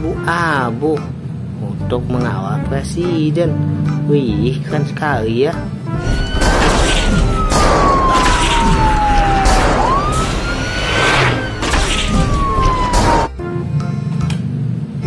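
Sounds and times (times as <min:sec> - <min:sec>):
police siren wailing: 0:06.0 - 0:13.4.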